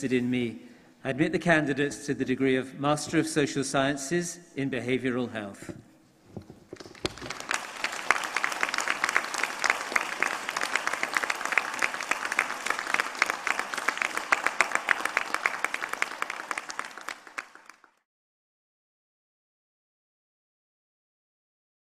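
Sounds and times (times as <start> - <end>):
audience applauding: 6.7 - 18.0.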